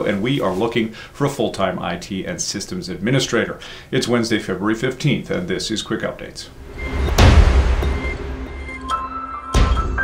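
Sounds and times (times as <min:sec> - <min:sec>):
deep bass hit: 0:06.6 - 0:09.0
intro music with held tones: 0:06.6 - 0:10.0.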